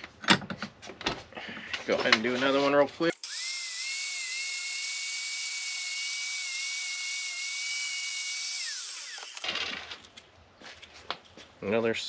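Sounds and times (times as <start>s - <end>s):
grinder disc spinning down: 3.1s - 9.4s
angle grinder whining: 3.1s - 9.5s.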